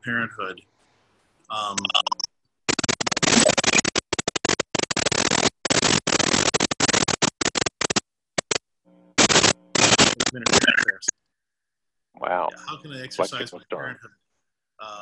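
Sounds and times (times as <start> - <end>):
harsh microphone crackling: 1.7 - 11.1
steady buzz: 8.5 - 11.0.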